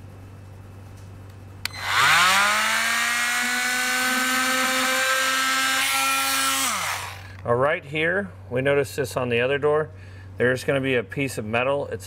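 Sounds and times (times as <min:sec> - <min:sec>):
oscillating tool whining and cutting: 0:01.7 - 0:07.4.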